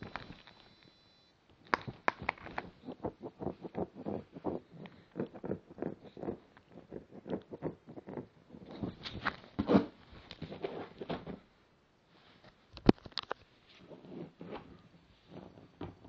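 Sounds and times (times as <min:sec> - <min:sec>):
hand scratching on paper: 0:02.7 - 0:09.0.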